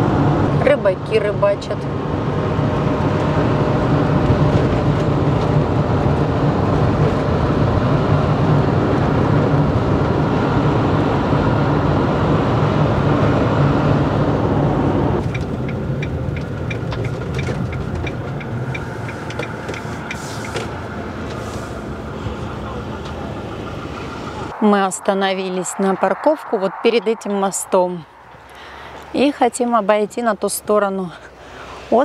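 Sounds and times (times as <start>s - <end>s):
engine and road noise: 0.0s - 32.0s
turn indicator ticking: 15.2s - 21.4s.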